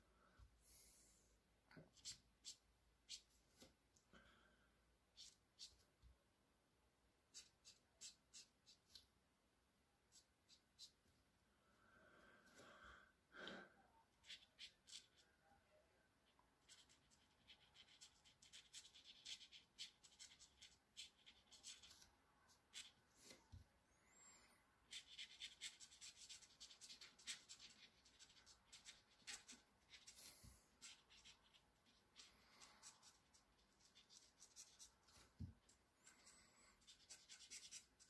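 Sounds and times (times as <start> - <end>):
pen scratching on paper: 1.9 - 3.3, 7.3 - 9.0, 14.2 - 15.2, 16.6 - 23.4, 24.8 - 38.0.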